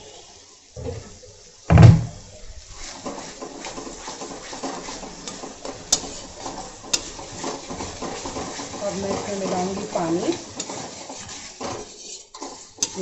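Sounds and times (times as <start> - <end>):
food sizzling in a pan: 0.0 - 13.0
heavy thump: 1.7 - 2.3
metal spatula scraping a pan: 2.8 - 13.0.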